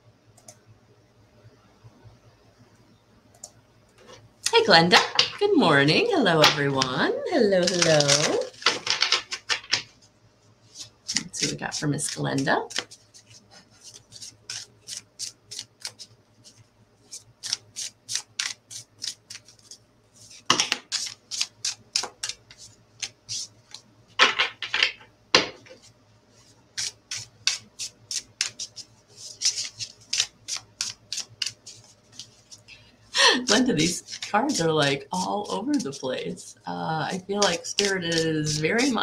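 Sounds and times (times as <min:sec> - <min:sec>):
cards being shuffled: 0:07.6 - 0:10.0, 0:10.7 - 0:25.0, 0:26.7 - 0:32.6, 0:33.5 - 0:36.0, 0:37.1 - 0:39.0.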